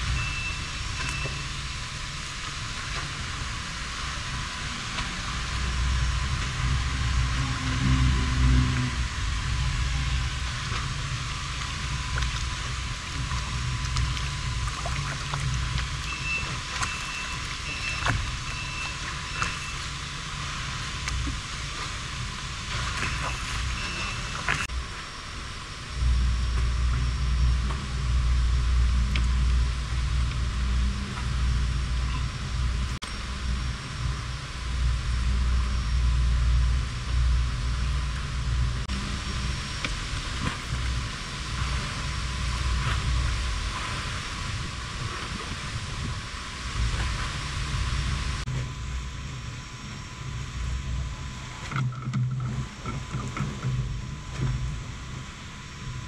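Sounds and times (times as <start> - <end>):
wind hiss: 0.0 - 51.7
choppy water around boat: 0.0 - 56.0
wind buffeting microphone: 26.0 - 51.4.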